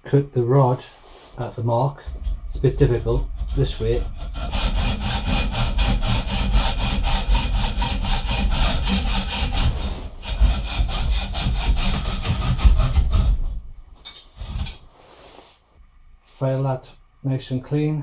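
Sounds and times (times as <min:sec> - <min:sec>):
hacksaw cutting metal rod: 0:03.4 - 0:13.4.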